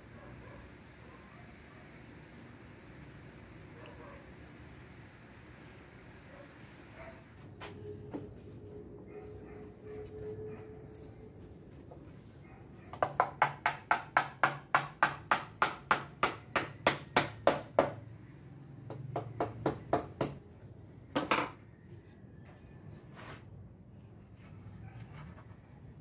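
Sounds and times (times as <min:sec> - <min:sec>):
hammer striking wood: 0:13.0 - 0:18.0, 0:18.9 - 0:20.4.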